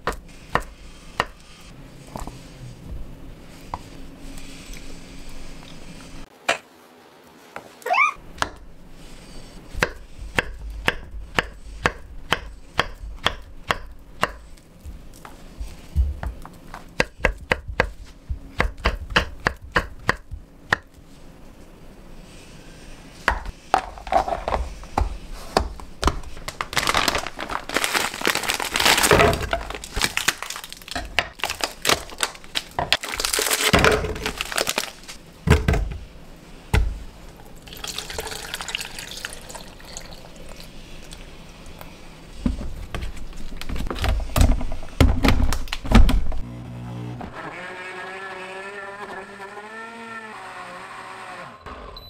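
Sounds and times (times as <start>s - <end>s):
plastic rustling: 23.7s - 35.2s
yogurt pouring: 37.5s - 41.2s.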